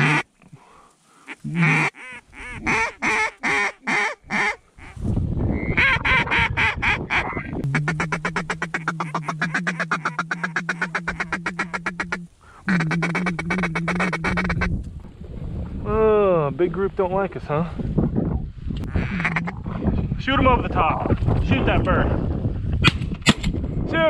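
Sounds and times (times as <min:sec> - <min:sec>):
duck call quacks: 0:00.0 - 0:00.2, 0:01.5 - 0:05.0, 0:05.8 - 0:14.7, 0:19.0 - 0:19.6.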